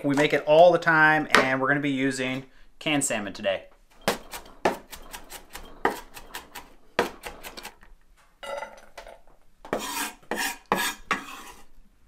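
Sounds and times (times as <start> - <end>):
knife chopping on a wooden board: 4.1 - 7.7
knife scraping into a bowl: 4.1 - 7.8, 9.7 - 11.7.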